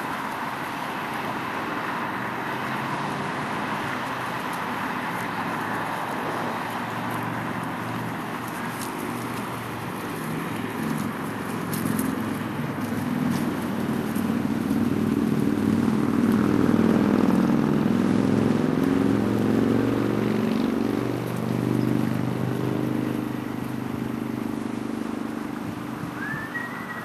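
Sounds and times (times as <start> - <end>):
engine droning hum: 0.0 - 27.0.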